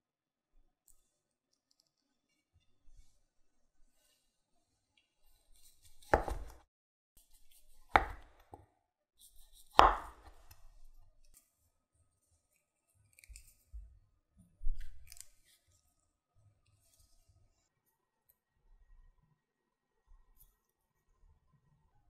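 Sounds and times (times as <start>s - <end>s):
knife striking cutting board: 5.9s - 6.6s, 7.8s - 8.6s, 9.5s - 10.6s.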